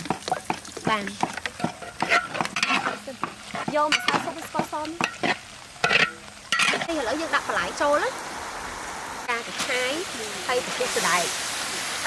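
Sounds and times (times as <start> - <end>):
food sizzling: 0.0 - 12.0
spatula scraping and clicking on pan: 0.1 - 6.9.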